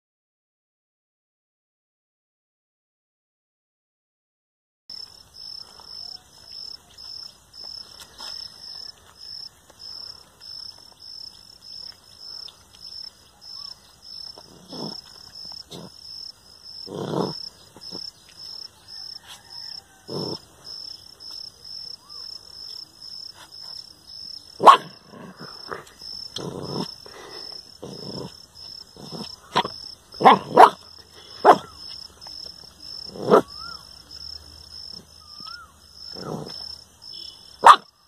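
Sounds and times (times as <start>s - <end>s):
insect chirping: 4.9s - 38.0s
puppy growling: 14.2s - 16.0s, 16.8s - 18.6s, 19.3s - 20.6s, 24.6s - 31.8s, 33.0s - 33.8s, 34.9s - 36.6s.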